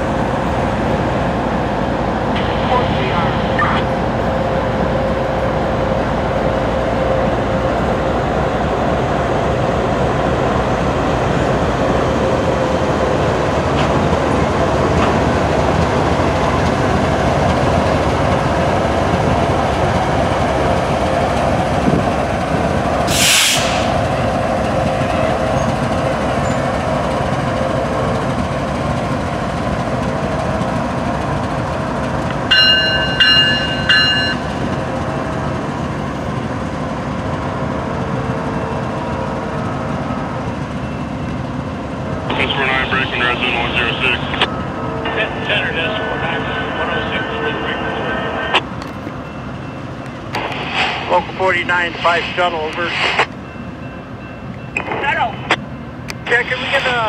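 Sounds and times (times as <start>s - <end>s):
freight cars rumbling on rails: 0.0s - 57.0s
brief hiss: 23.1s - 23.9s, 50.4s - 51.2s.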